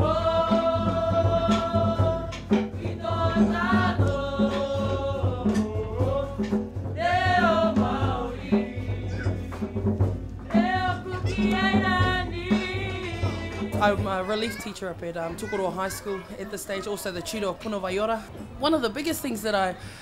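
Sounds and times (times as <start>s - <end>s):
group of voices singing: 0.0s - 14.2s
drums beating: 0.0s - 19.8s.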